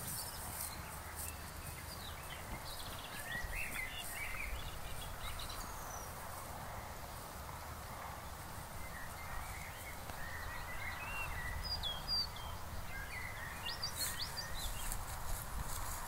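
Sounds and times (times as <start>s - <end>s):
outdoor air rumble and hiss: 0.0s - 16.0s.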